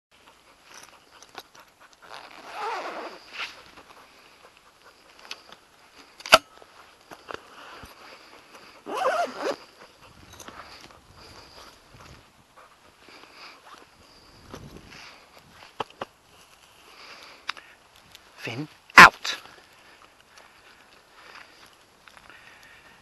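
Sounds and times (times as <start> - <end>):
microphone handling rustle: 13.6 - 17.4.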